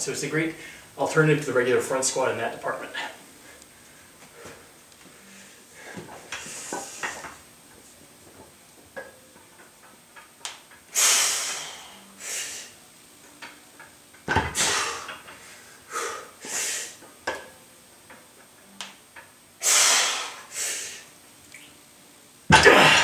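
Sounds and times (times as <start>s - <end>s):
man breathing hard: 11.0s - 12.7s, 14.6s - 17.0s.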